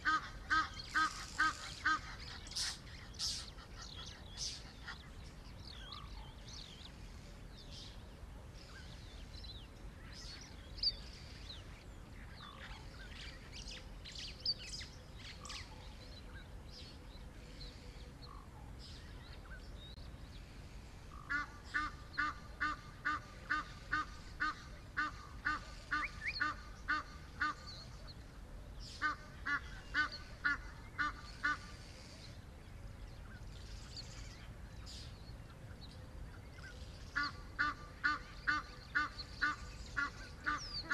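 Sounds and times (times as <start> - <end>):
birds chirping: 0.0 - 40.9.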